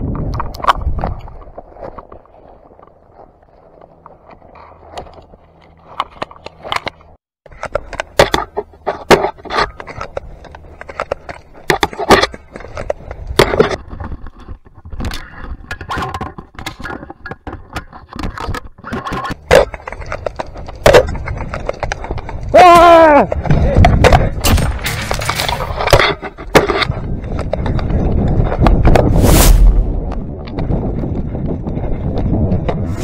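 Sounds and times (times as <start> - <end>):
clothing scraping through dry grass: 29.1 - 29.9.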